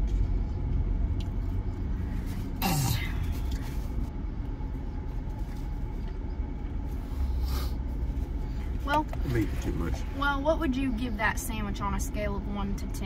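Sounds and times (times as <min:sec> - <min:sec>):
car engine idling: 0:00.0 - 0:13.0
person clearing throat: 0:02.6 - 0:03.2.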